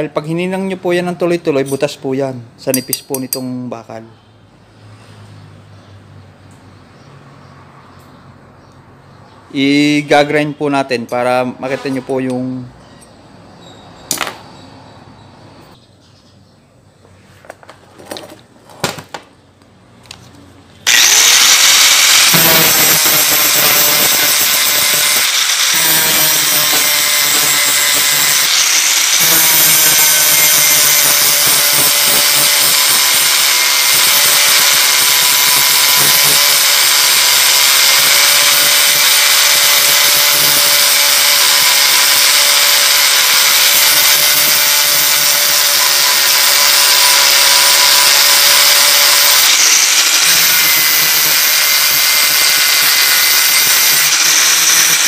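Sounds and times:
angle grinder grinding steel: 20.8s - 55.0s.

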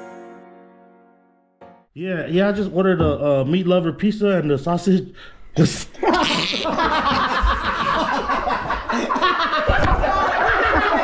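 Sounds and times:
people laughing: 5.9s - 11.0s.

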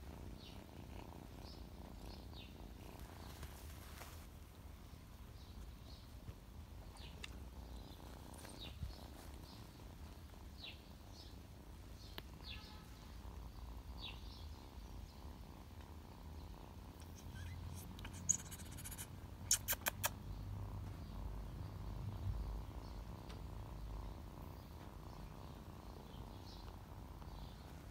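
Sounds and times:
faint bird chirps: 0.1s - 4.1s, 4.8s - 27.9s.

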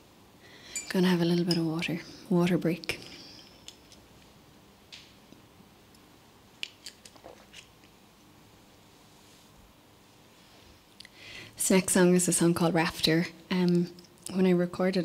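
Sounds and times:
faint clicks and handling noises: 2.8s - 8.0s.

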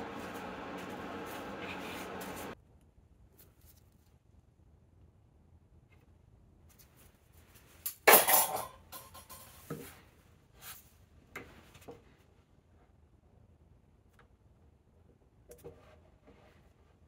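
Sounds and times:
metal tools clattering on workbench: 7.9s - 9.9s.

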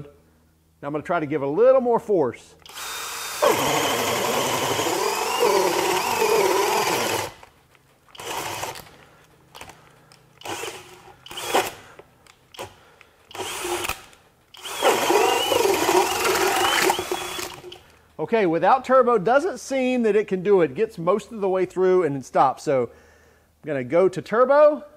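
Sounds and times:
hammer drill boring through wood: 2.6s - 7.5s, 8.1s - 8.9s, 10.4s - 11.8s, 12.5s - 17.8s.

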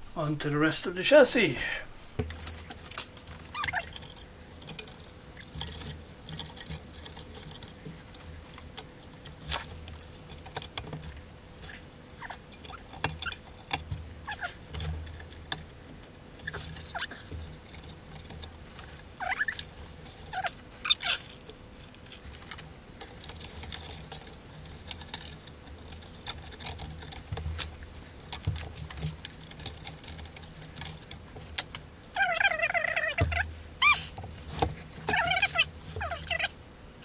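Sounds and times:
hands handling parts in metal chassis: 2.2s - 36.5s
short squeaks falling in pitch: 3.5s - 3.9s, 32.2s - 34.0s.

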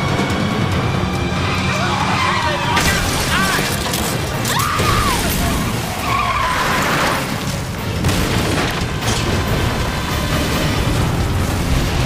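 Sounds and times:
tire squeal: 1.1s - 2.9s, 4.4s - 7.4s.

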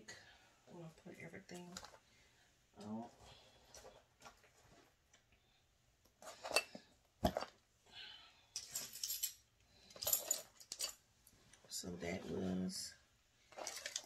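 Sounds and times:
rustling: 13.4s - 14.0s.

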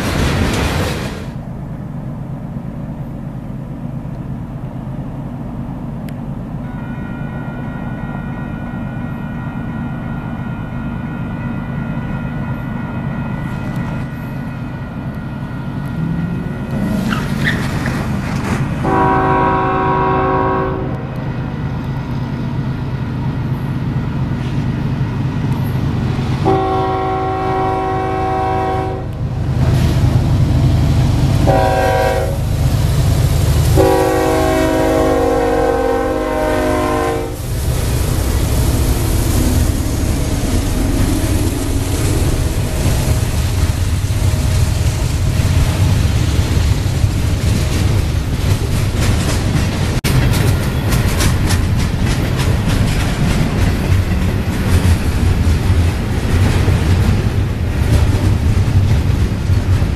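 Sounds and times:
locomotive engines rumbling: 0.0s - 59.9s
train rumbling past: 0.0s - 59.9s
locomotive air horn: 6.6s - 9.9s, 18.8s - 21.2s, 26.4s - 29.2s, 31.4s - 32.5s, 33.7s - 37.5s.

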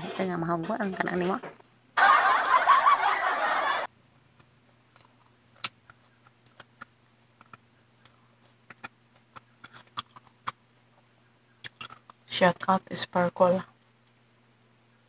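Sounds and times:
eating clicks and smacks: 4.3s - 10.6s, 11.6s - 12.3s
person chewing food: 4.3s - 12.3s.

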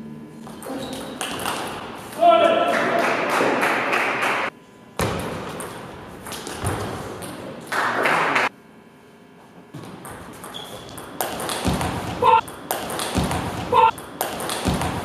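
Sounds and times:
loud bursts of hall noise: 2.2s - 4.6s.

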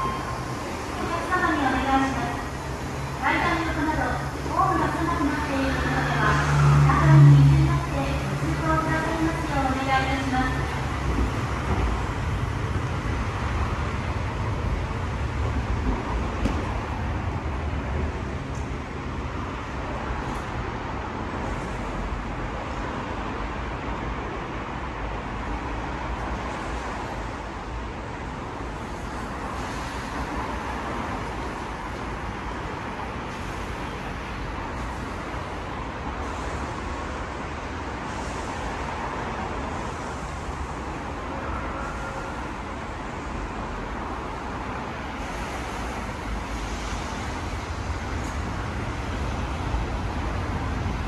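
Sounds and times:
low rumble of road traffic: 0.0s - 51.0s.

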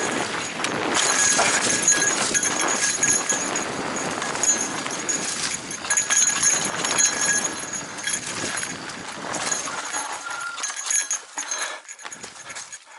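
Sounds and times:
mountain bike rattling: 0.0s - 12.9s.

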